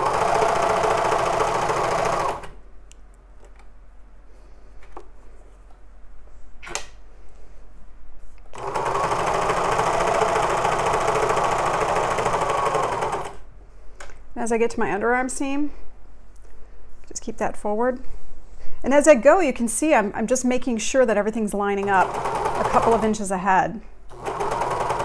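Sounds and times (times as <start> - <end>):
serger running: 0.0 - 2.5, 8.6 - 13.4.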